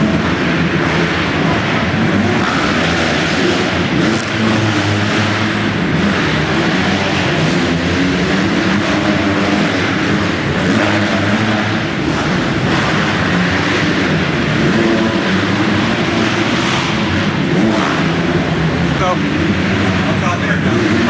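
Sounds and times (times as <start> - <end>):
motocross bike engines revving: 0.0 - 21.0.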